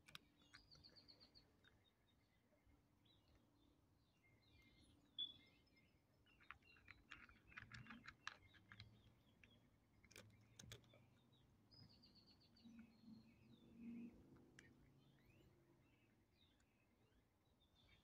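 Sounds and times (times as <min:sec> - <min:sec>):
birds chirping: 0:00.0 - 0:18.0
cat crunching kibble: 0:06.4 - 0:11.0.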